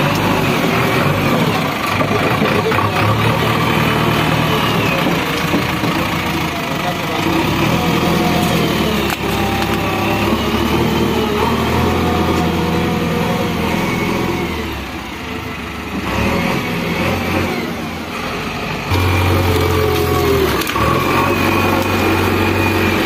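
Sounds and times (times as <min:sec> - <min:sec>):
diesel engine under load: 0:00.0 - 0:23.0
hydraulic whine: 0:07.2 - 0:23.0.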